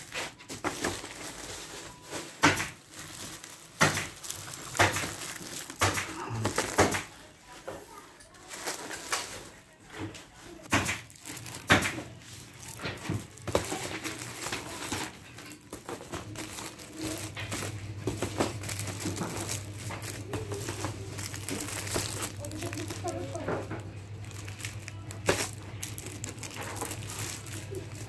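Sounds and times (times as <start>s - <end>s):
plastic film crinkling: 0.0s - 28.0s
low steady hum: 12.2s - 28.0s.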